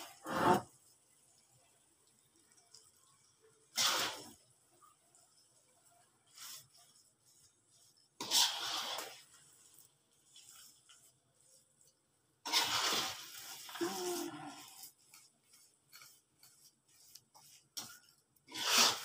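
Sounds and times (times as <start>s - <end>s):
metal spoon scraping a wok: 8.0s - 11.1s, 12.4s - 19.0s.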